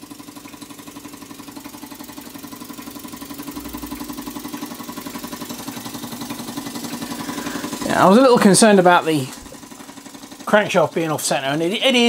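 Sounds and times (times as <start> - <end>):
model steam engine exhaust beating: 0.0 - 12.0.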